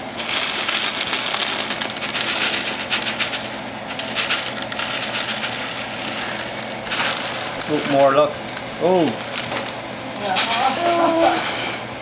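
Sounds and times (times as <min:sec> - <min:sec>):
dry macaroni pouring onto surface: 0:00.0 - 0:08.3.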